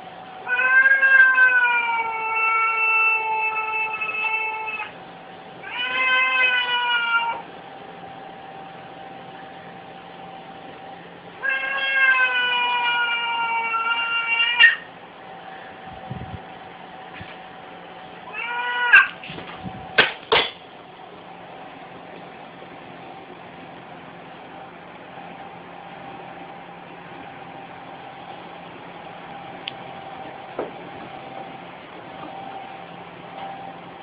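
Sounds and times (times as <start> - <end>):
cats yowling: 0.4 - 5.0, 5.6 - 7.5, 11.4 - 14.9, 18.2 - 19.2.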